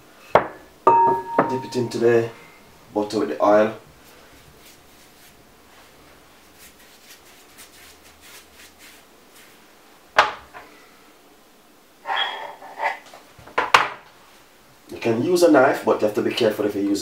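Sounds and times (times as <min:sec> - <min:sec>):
pastry brush strokes: 0:03.9 - 0:09.8
knife scraping on marble: 0:12.0 - 0:13.1.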